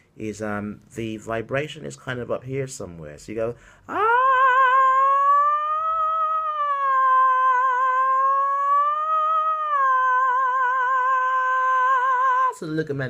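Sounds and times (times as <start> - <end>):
man singing a long high note: 3.9 - 12.6.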